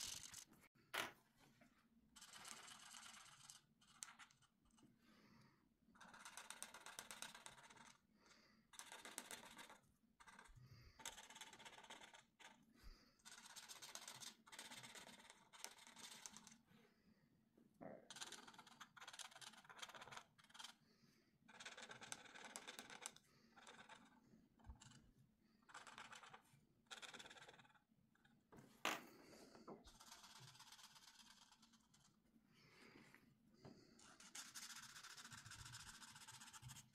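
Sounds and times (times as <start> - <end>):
marker scratching on paper: 8.8 - 12.6, 13.2 - 16.6, 21.5 - 25.0, 25.7 - 27.8, 29.9 - 32.2, 34.0 - 36.9.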